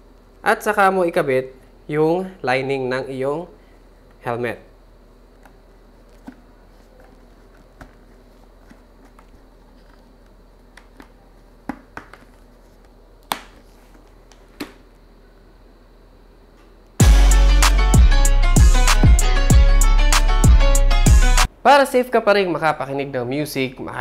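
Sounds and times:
hands handling motorcycle helmet: 0:06.0 - 0:12.9.

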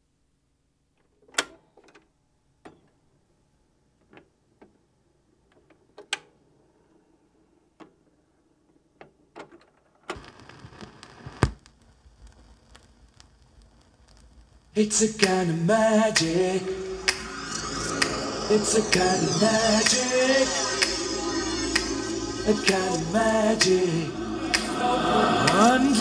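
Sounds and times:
vinyl surface hiss and crackle: 0:09.9 - 0:26.0
vinyl record pop: 0:10.1 - 0:26.0.

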